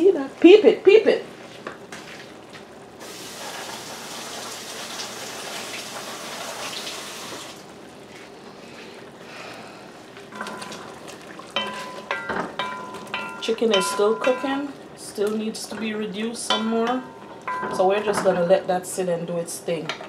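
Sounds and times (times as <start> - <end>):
chicken sizzling in a pot: 3.0 - 7.5
spoon clanking against metal pot: 10.3 - 10.9, 11.6 - 18.4.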